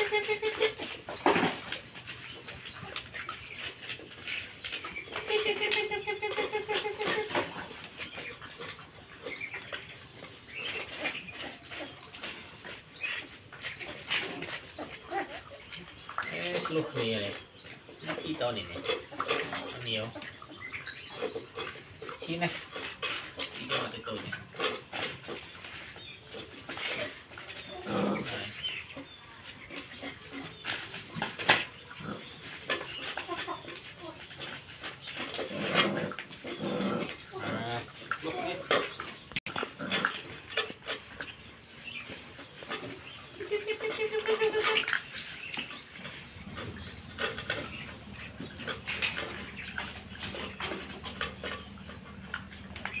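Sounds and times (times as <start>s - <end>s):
pets chewing and eating: 0.0s - 53.0s
animal whining: 2.7s - 17.2s, 26.2s - 53.0s.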